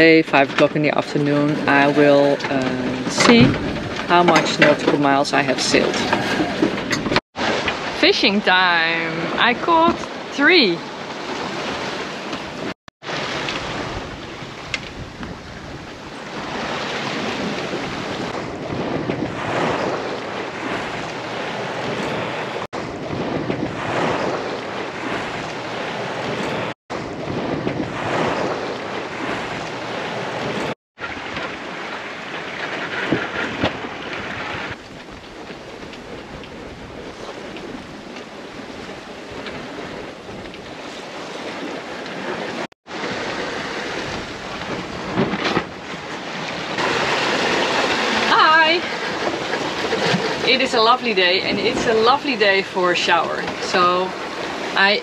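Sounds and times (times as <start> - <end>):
breaking waves rushing: 0.0 - 55.0
wind buffeting microphone: 0.0 - 55.0.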